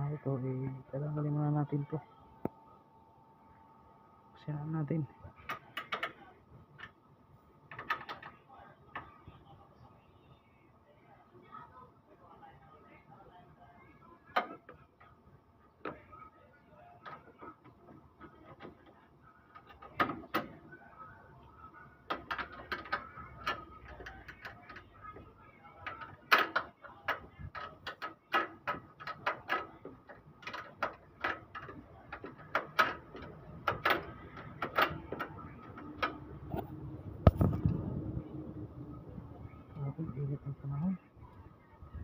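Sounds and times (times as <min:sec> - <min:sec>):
wrench clicking and knocking on bolts: 0:25.8 - 0:36.3.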